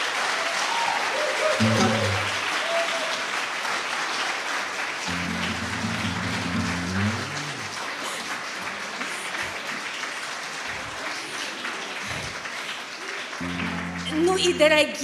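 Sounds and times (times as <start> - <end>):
audience applauding: 0.0 - 15.0
acoustic guitar chord ringing: 1.6 - 2.5, 5.1 - 7.7, 13.4 - 15.0.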